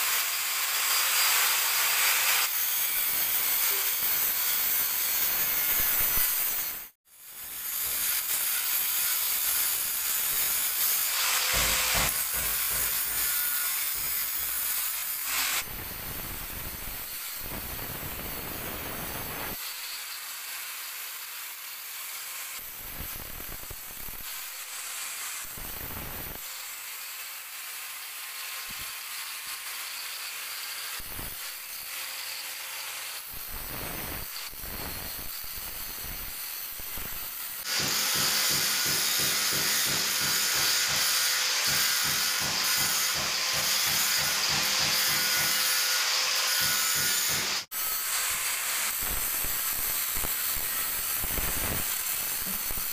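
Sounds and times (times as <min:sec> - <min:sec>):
angle grinder sanding stone: 0:00.0 - 0:15.7, 0:28.4 - 0:52.9.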